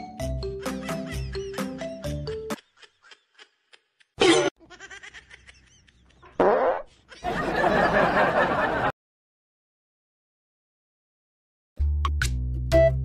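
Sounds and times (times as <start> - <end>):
farts: 6.4 - 6.9.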